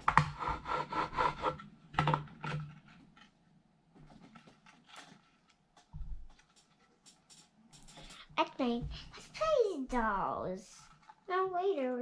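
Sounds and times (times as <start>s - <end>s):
plastic doll parts clicking: 5.8s - 8.2s.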